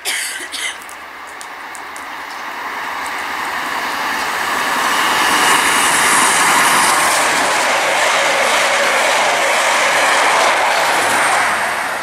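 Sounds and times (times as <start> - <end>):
diesel train approaching: 0.0 - 12.0
wheels on rails: 3.0 - 12.0.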